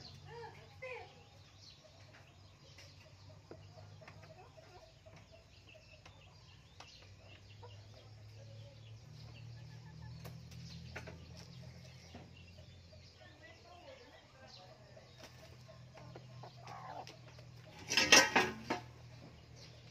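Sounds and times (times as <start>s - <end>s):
hen clucking: 15.5s - 18.9s.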